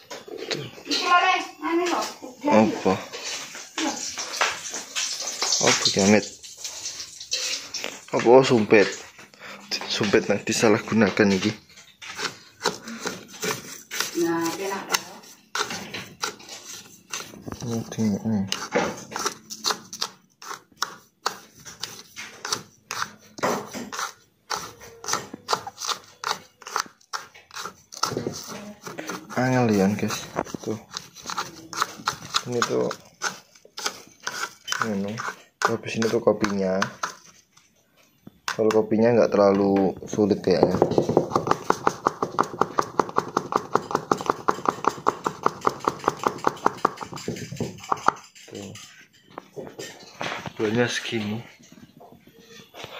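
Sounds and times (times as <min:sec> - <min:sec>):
stick scraping grains through funnel: 0:10.6 - 0:37.4
plastic funnel tapping glass bottle: 0:40.6 - 0:47.4.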